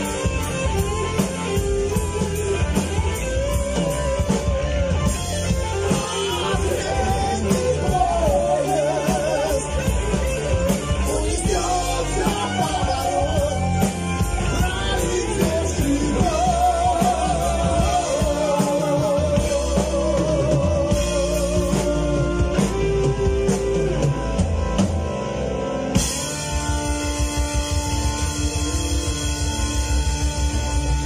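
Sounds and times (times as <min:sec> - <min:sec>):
bass guitar: 0:00.0 - 0:31.0
drum kit: 0:00.0 - 0:31.0
electric guitar: 0:00.0 - 0:31.0
keyboard: 0:00.0 - 0:31.0
lead vocal singing: 0:05.0 - 0:24.4.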